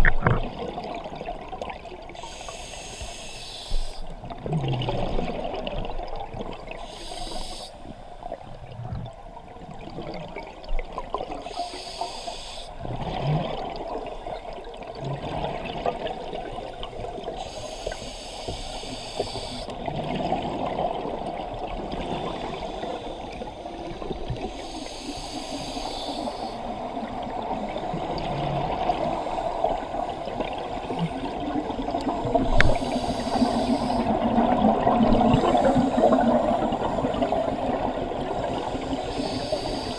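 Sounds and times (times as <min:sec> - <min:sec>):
regulator breathing hiss: 0:02.1 - 0:04.1, 0:06.8 - 0:08.1, 0:11.4 - 0:12.8, 0:17.4 - 0:19.7, 0:22.2 - 0:27.8, 0:32.4 - 0:34.2, 0:35.3 - 0:37.2, 0:38.3 - 0:39.9
exhaled bubbles burbling: 0:04.2 - 0:06.8, 0:12.8 - 0:17.4, 0:26.8 - 0:38.6.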